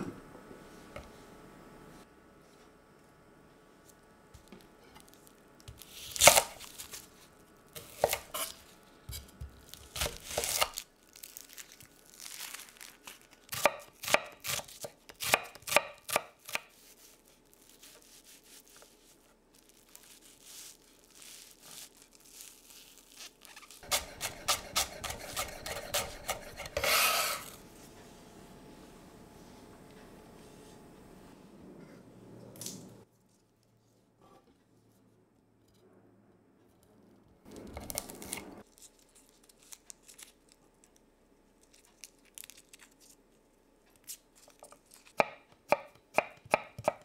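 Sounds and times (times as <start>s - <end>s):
knife chopping on wooden board: 7.8s - 8.5s, 13.5s - 16.7s, 23.8s - 27.4s, 45.2s - 47.0s
knife blade scraping board: 7.8s - 9.2s, 23.6s - 27.6s.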